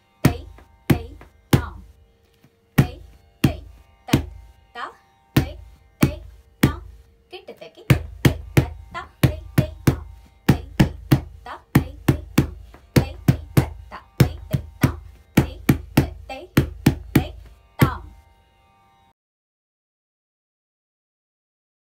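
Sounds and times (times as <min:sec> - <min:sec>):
bare feet stamping on wooden floor: 0:00.3 - 0:01.8, 0:05.4 - 0:06.9, 0:07.9 - 0:18.0.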